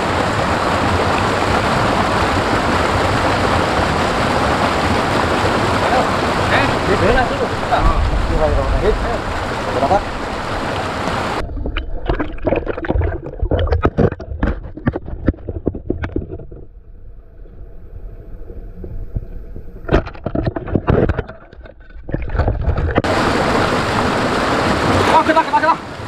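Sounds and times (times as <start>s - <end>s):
rushing stream water: 0.0s - 15.4s, 19.8s - 26.0s
muffled underwater knocks and clatter: 11.4s - 16.7s, 19.1s - 23.1s.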